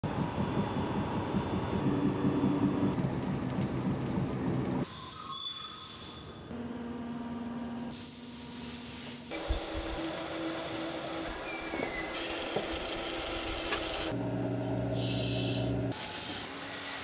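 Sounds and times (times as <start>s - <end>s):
machine hum: 0.0s - 4.9s.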